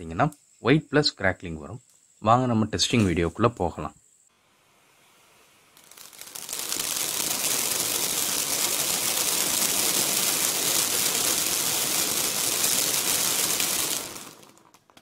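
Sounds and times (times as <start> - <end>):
firework spark spray hissing: 4.2 - 15.0
firework crackling: 4.3 - 15.0.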